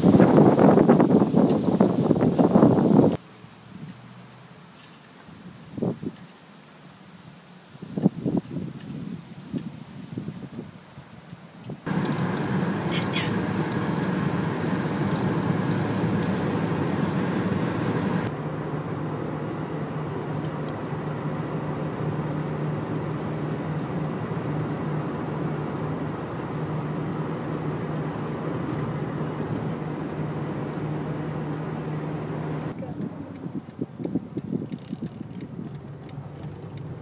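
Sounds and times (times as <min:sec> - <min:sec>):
car road and engine noise: 0:00.0 - 0:37.0
low steady drone: 0:11.9 - 0:33.4.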